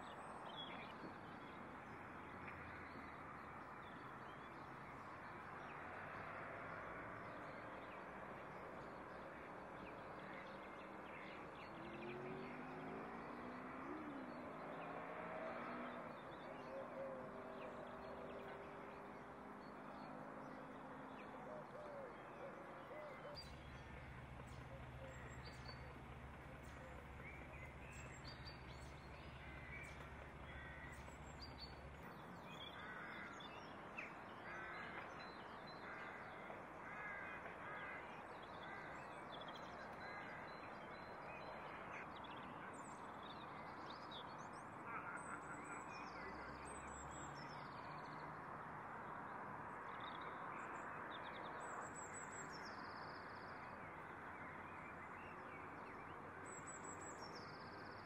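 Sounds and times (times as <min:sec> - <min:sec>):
bird calls: 0:21.3 - 0:35.0.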